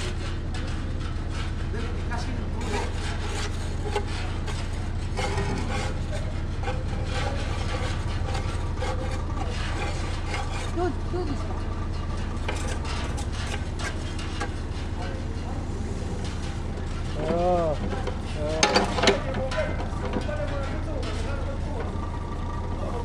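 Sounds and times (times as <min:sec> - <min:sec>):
scraping of soil and gravel: 0:00.0 - 0:11.1
excavator diesel engine running: 0:00.0 - 0:23.0.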